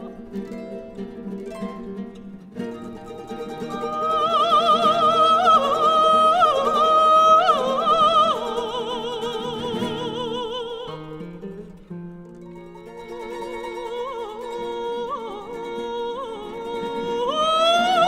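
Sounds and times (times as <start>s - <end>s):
guitar and mandolin: 0.0s - 18.0s
soprano singing with vibrato: 2.6s - 11.7s, 12.6s - 18.0s.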